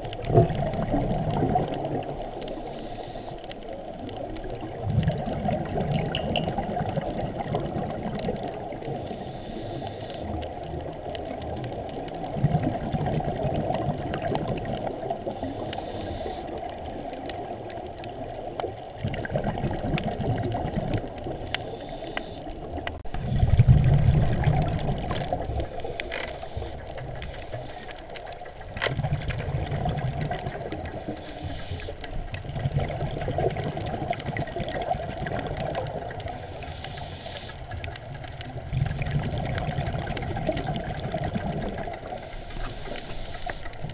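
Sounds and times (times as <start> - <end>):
exhaled bubbles rumbling: 0.0 - 36.8, 37.6 - 43.0
regulator hiss: 2.5 - 3.4, 9.0 - 10.4, 15.4 - 16.5, 21.6 - 22.6, 30.9 - 32.0, 36.4 - 37.6, 42.2 - 43.8.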